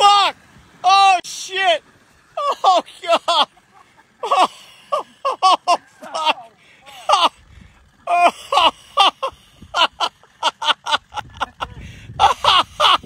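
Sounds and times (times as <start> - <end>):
person laughing hard: 2.4 - 7.4, 8.0 - 13.0.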